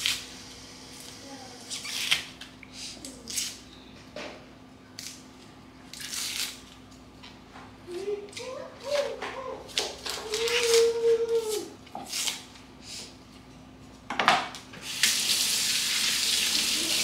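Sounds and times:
knife cutting onion: 8.3s - 12.5s.

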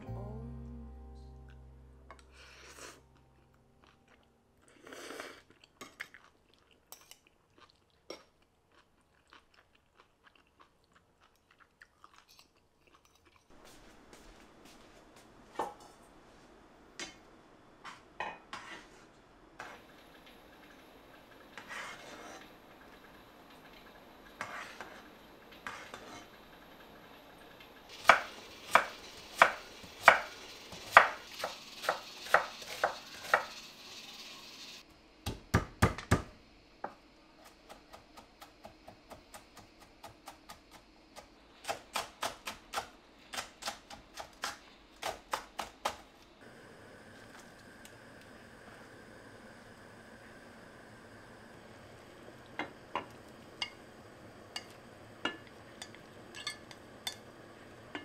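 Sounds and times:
kitchen utensils clinking: 54.5s - 57.3s.

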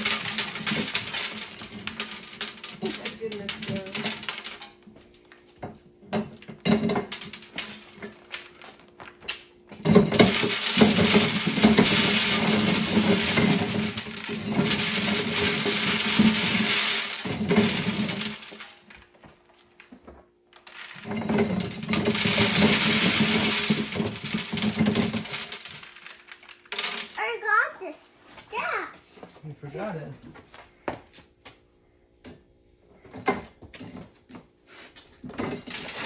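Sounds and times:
hand-cranked corn sheller: 0.0s - 4.8s, 9.9s - 18.8s, 20.6s - 27.2s
kernels rattling into wooden box: 0.0s - 5.0s, 6.1s - 9.1s, 9.8s - 19.1s, 20.6s - 27.2s, 35.2s - 36.0s.

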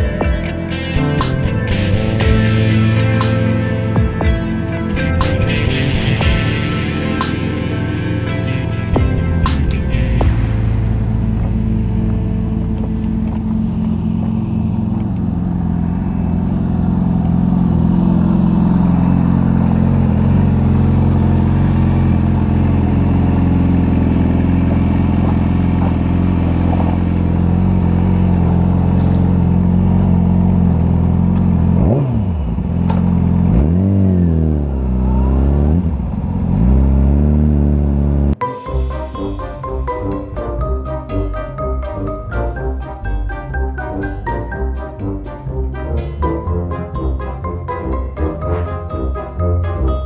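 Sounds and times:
music: 0.0s - 13.9s, 38.4s - 50.0s
motorcycle engine revving: 0.0s - 38.4s.

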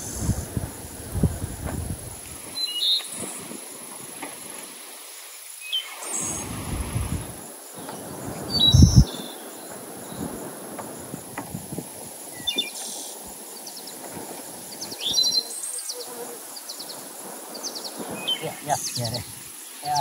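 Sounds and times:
high insect drone: 0.0s - 20.0s
birds chirping: 12.3s - 14.0s, 14.7s - 20.0s.

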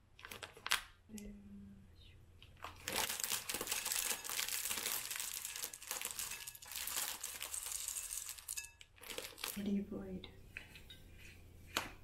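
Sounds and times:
plastic packaging crinkling: 0.2s - 1.0s, 2.5s - 9.7s.

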